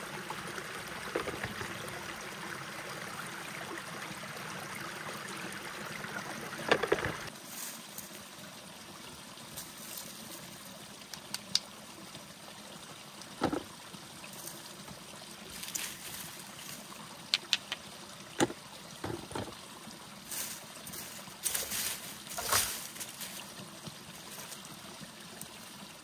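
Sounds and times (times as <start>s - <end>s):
stones knocking: 1.1s - 1.8s, 6.6s - 7.3s, 13.4s - 13.7s, 18.4s - 19.6s
rustling in leaf litter: 7.3s - 8.3s, 9.5s - 10.6s, 15.5s - 17.0s, 20.2s - 25.0s.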